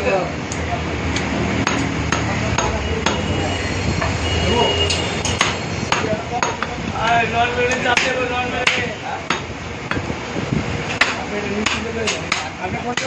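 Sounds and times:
cleaver chopping on wooden block: 10.9s - 13.0s.

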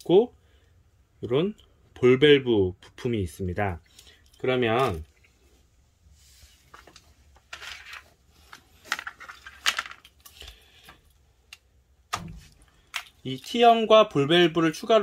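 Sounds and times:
plastic fittings rustling: 6.4s - 11.6s, 12.4s - 13.7s.

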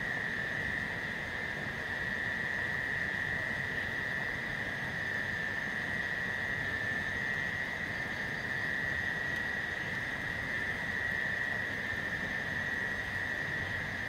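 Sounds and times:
high-pitched insect trill: 0.0s - 14.0s.

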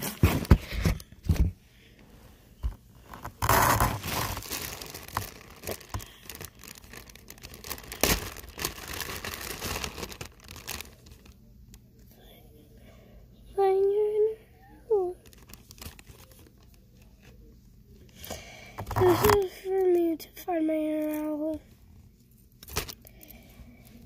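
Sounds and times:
rustling and crinkling: 0.0s - 1.6s, 2.6s - 12.0s, 15.2s - 18.0s.

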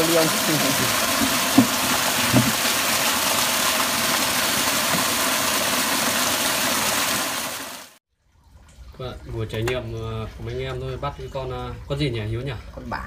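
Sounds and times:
water rushing through turbine: 0.0s - 8.0s.

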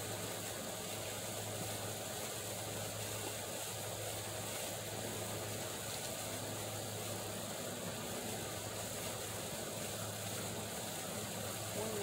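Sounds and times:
even hiss: 0.0s - 12.0s.

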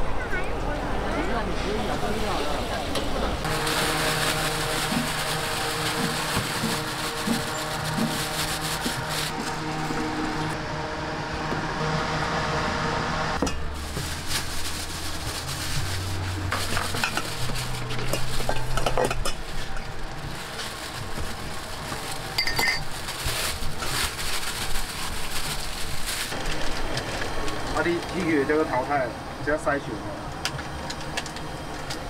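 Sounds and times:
food sizzling: 3.4s - 10.6s.

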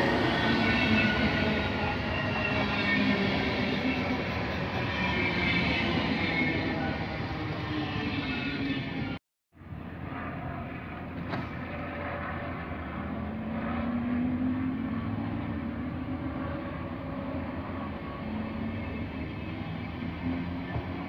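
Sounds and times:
wheels rumbling on track: 9.6s - 21.0s.

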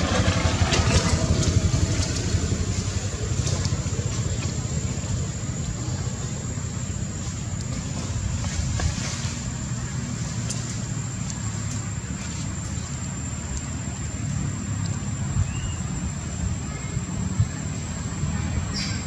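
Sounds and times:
low outdoor rumble: 0.0s - 19.0s
faint clicks: 13.4s - 13.7s, 14.8s - 15.0s.

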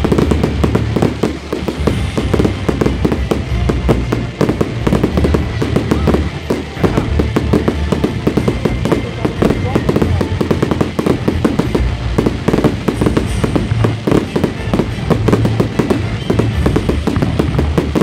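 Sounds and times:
fireworks bursting and crackling: 0.0s - 18.0s.

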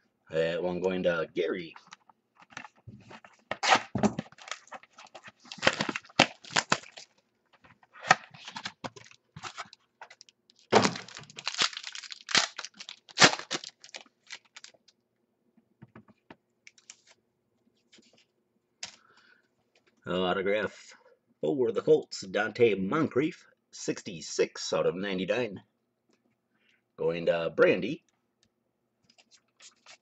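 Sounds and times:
plastic card holders crinkling: 1.9s - 14.9s.

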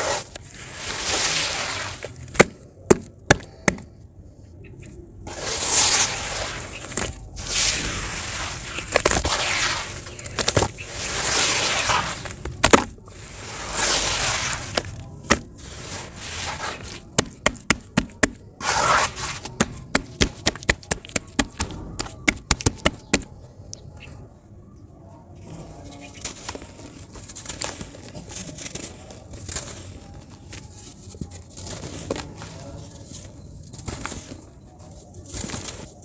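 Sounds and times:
hands squelching wet sand: 5.3s - 12.5s, 13.1s - 17.2s.

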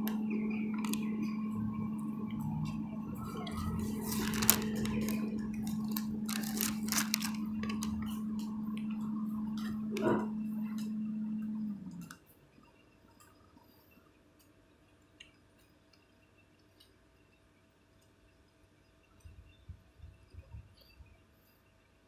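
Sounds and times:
electric locomotive low tone: 0.0s - 12.2s.

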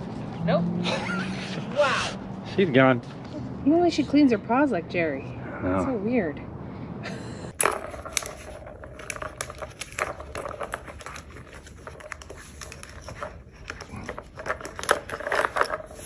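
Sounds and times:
plastic toy balls clattering: 7.6s - 16.0s.

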